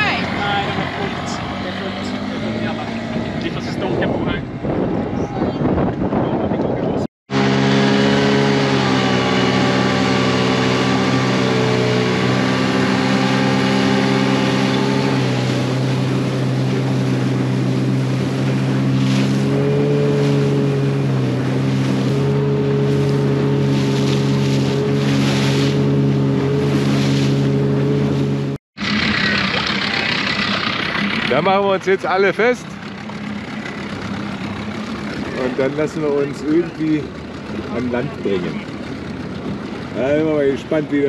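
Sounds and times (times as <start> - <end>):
outboard motor drone: 0.0 - 41.0
wind on microphone: 2.9 - 7.1
water rushing past hull: 7.3 - 41.0.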